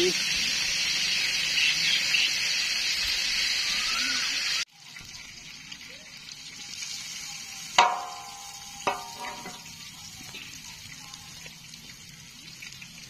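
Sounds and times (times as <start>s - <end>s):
kebabs sizzling in oil: 0.0s - 13.0s
metal spatula clanking on pan: 7.8s - 9.7s.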